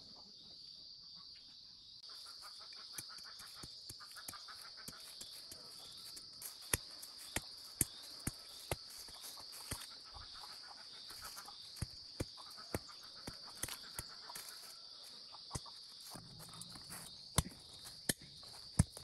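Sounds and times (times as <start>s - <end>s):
insects chirring: 0.0s - 19.0s
hand tool digging in soil: 3.0s - 10.3s, 15.5s - 19.0s.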